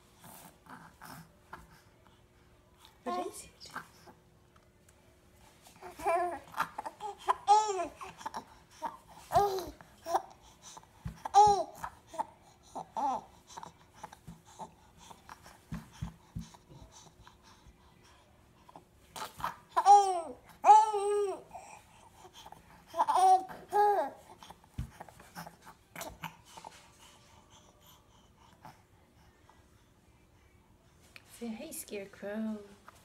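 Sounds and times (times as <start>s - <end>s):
baby cooing: 5.8s - 15.1s, 19.2s - 24.6s.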